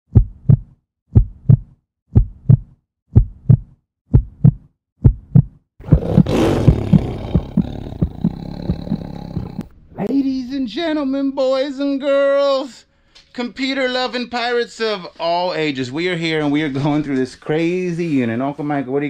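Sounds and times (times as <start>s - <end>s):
heartbeat double thumps: 0.1s - 9.7s.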